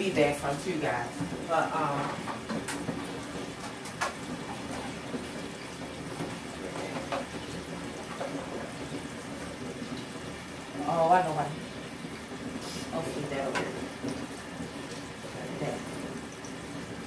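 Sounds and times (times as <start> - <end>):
steady hiss: 12.4 - 13.4.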